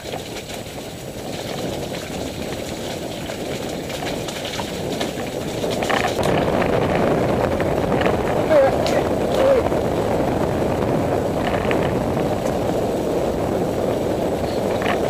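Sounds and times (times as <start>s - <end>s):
tyres crunching over stones: 0.0s - 6.9s
bike rattling: 0.0s - 15.0s
rushing noise: 0.0s - 15.0s.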